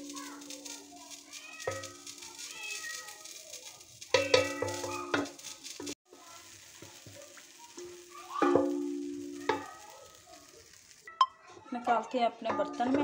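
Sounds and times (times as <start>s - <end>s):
spoon stirring thick dal: 0.3s - 10.9s
spoon knocking on pot: 4.1s - 5.3s.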